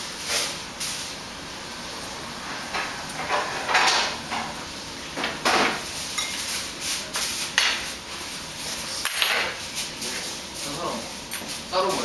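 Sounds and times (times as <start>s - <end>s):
utensils scraping tableware: 5.5s - 6.7s.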